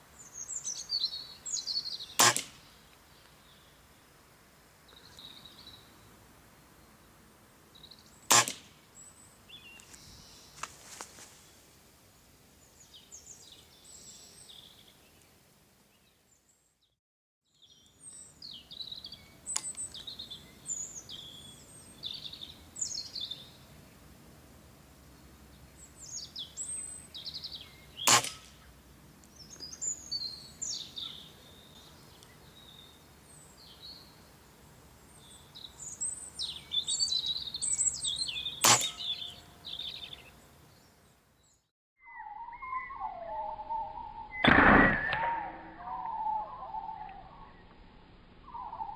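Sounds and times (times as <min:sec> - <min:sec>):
small birds chirping: 0:00.0 - 0:04.1, 0:04.8 - 0:06.1, 0:06.7 - 0:11.7, 0:12.6 - 0:24.0, 0:25.1 - 0:48.9
air rifle shots: 0:02.2 - 0:02.7, 0:08.3 - 0:08.7, 0:28.0 - 0:28.6, 0:38.6 - 0:39.0, 0:44.4 - 0:45.5.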